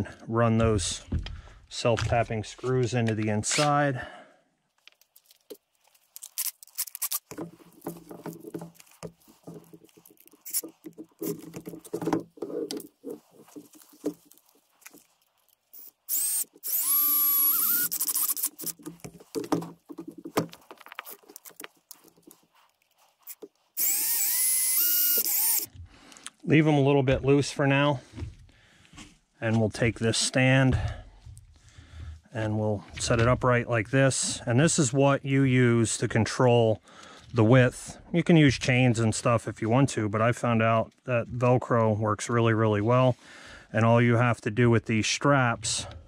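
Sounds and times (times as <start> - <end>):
handling clicks and knocks: 4.8 - 15.6, 18.0 - 23.6
cordless drill driving screws: 15.7 - 19.0, 23.8 - 25.7.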